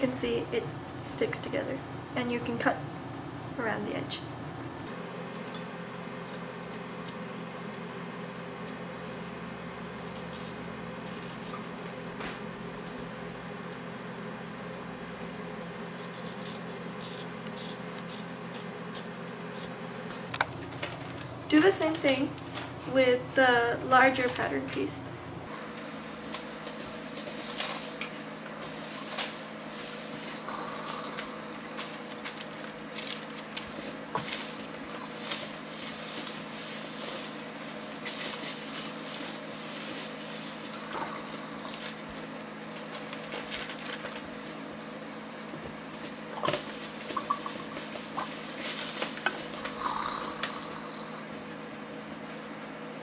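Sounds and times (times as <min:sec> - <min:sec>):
steady low hum: 0:00.0 - 0:53.0
iron scraping over paper: 0:07.8 - 0:12.6, 0:15.8 - 0:23.0, 0:25.5 - 0:44.6, 0:46.0 - 0:51.5.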